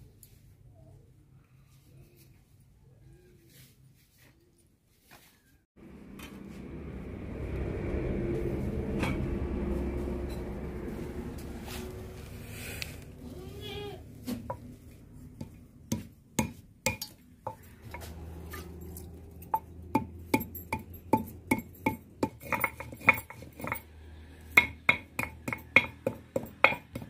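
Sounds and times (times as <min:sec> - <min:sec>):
stone roller knocking and scraping: 0:15.4 - 0:23.9, 0:24.5 - 0:27.0.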